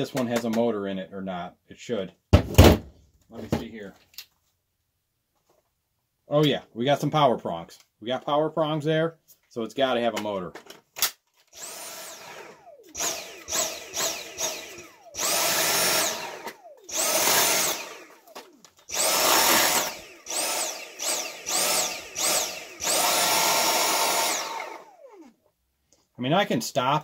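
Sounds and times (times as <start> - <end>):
vacuum motor whine: 11.6 - 25.3.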